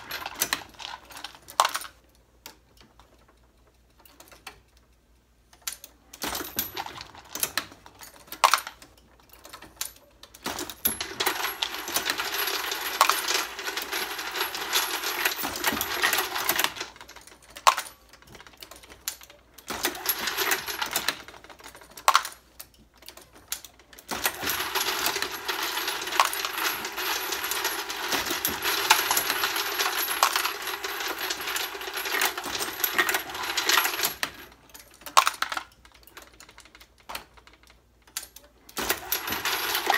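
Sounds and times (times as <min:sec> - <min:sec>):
brass cases rattling in hopper: 0:00.0 - 0:01.7, 0:06.2 - 0:08.6, 0:10.5 - 0:19.0, 0:19.6 - 0:22.1, 0:24.0 - 0:35.7, 0:38.8 - 0:39.9.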